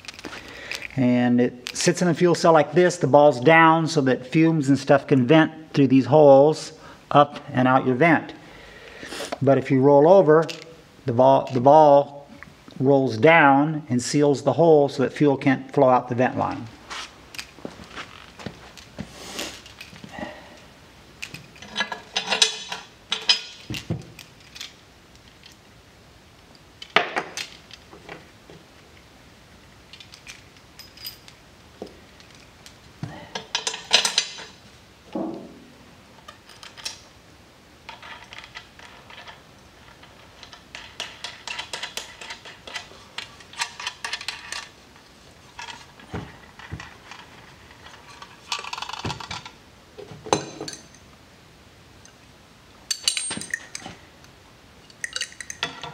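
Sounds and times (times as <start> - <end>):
metal parts and tools clinking: 21.2 - 25.6, 29.9 - 31.4, 32.1 - 37.1, 37.8 - 49.6, 50.3 - 51.1, 52.8 - 54.1, 54.8 - 55.9.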